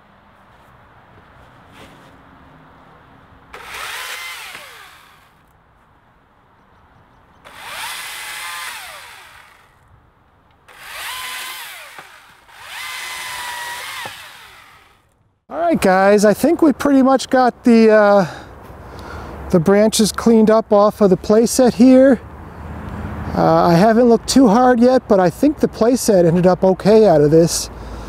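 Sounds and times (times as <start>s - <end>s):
electric chainsaw whine: 3.5s - 5.5s, 7.4s - 9.8s, 10.7s - 15.2s.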